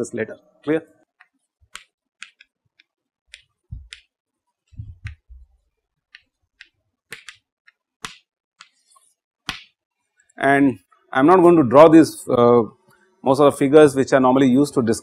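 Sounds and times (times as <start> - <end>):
chalk tapping and scratching: 1.1 - 5.4, 6.1 - 9.8
soft low thumps: 3.7 - 4.0, 4.7 - 5.6.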